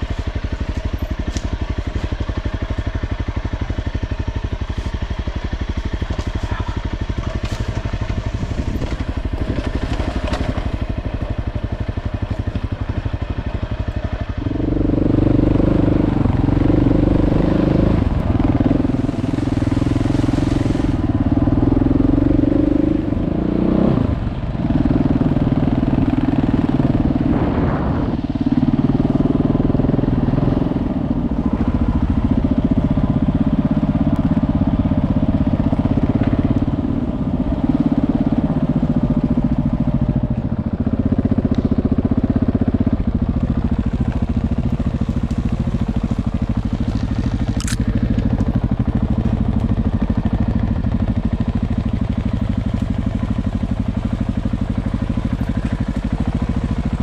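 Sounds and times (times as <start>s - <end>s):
motorcycle engine running: 0.0s - 57.0s
sharp click: 47.5s - 47.9s.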